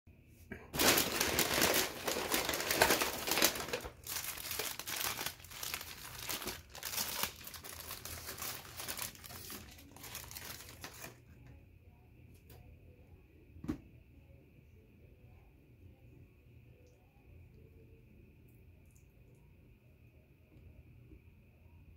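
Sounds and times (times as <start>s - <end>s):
paper wrapper rustling and crinkling: 0.7s - 11.2s.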